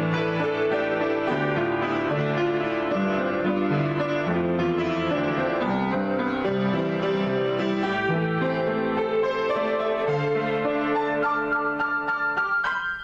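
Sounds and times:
solo piano improvisation: 0.0s - 13.0s.

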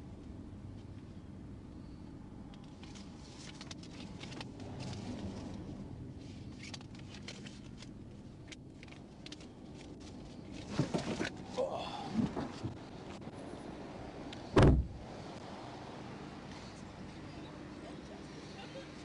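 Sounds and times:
car door thud: 14.5s - 15.0s.

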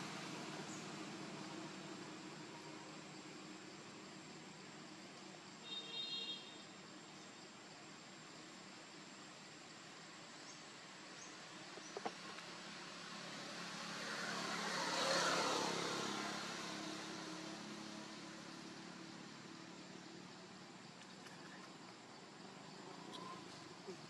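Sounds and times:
vehicle passing by: 0.0s - 2.7s, 12.0s - 20.1s.

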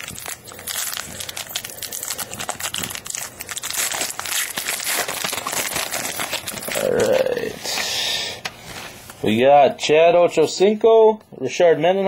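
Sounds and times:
foil wrapper crinkling and tearing: 0.0s - 8.0s.

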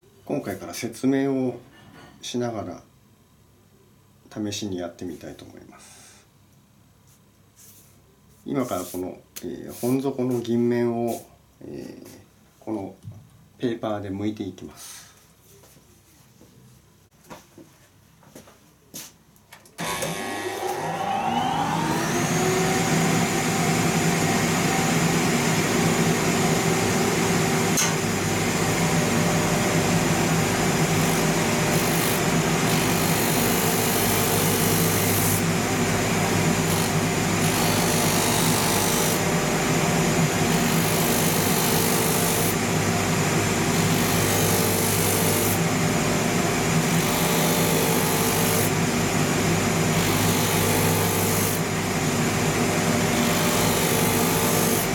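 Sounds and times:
sanding wheel motor whine: 19.8s - 54.9s.

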